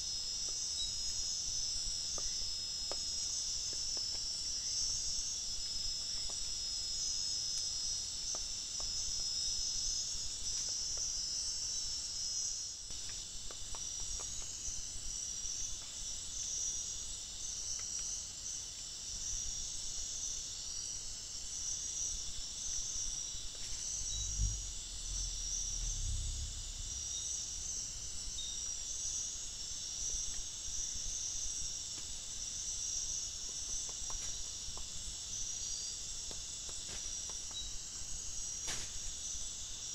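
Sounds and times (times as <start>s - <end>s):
night insects trilling: 6.2s - 39.9s
low thumps: 24.0s - 28.3s.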